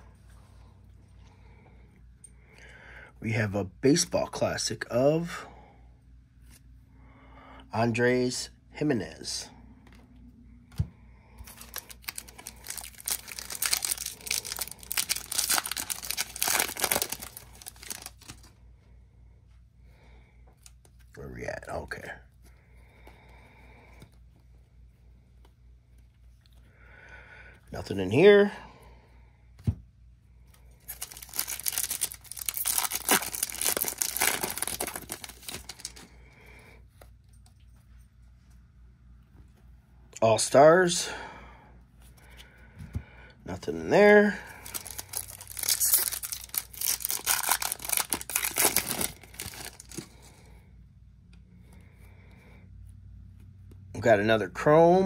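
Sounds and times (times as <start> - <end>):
foil wrapper crinkling and tearing: 11.4 - 18.5, 30.8 - 36.1, 44.5 - 50.2.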